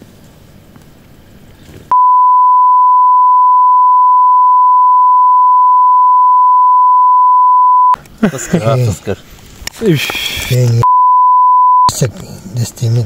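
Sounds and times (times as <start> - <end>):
censor bleep: 1.9 - 8.0, 10.8 - 11.9.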